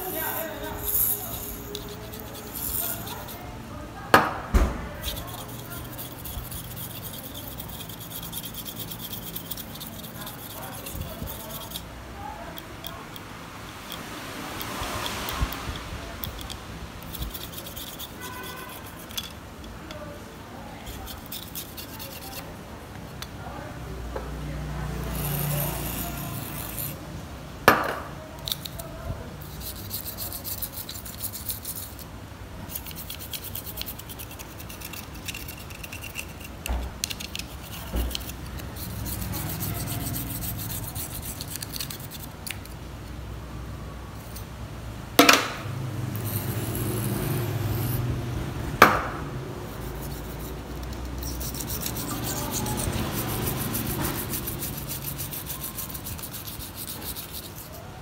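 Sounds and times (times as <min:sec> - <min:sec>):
toothbrush scrubbing circuit board: 0:00.0 - 0:03.5, 0:05.0 - 0:11.9, 0:12.6 - 0:19.4, 0:20.7 - 0:22.5, 0:24.9 - 0:27.0, 0:28.4 - 0:42.8, 0:46.0 - 0:48.2, 0:49.6 - 0:58.0
sharp knocks: 0:48.8 - 0:49.3.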